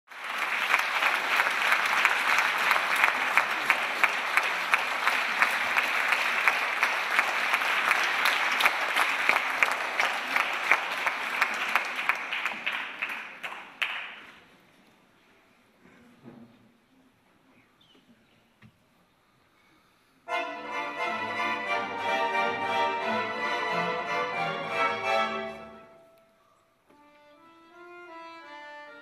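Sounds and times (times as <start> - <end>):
audience applauding: 0.1 - 14.4.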